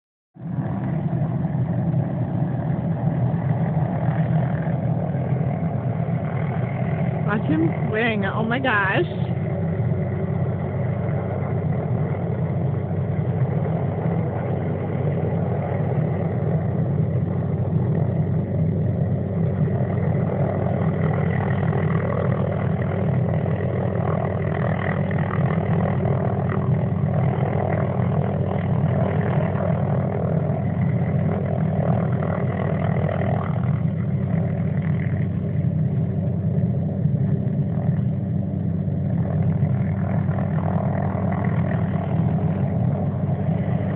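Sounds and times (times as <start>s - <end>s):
helicopter hovering: 0.4s - 43.9s.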